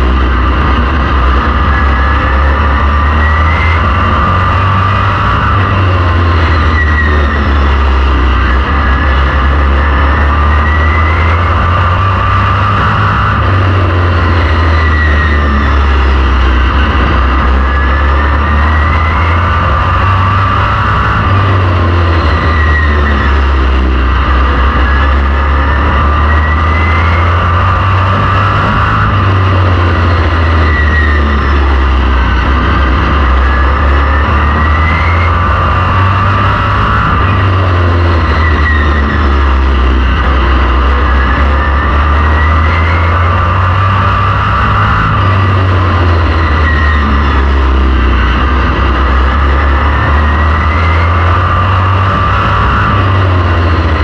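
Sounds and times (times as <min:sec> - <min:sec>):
race car engine: 0:00.0 - 0:54.0.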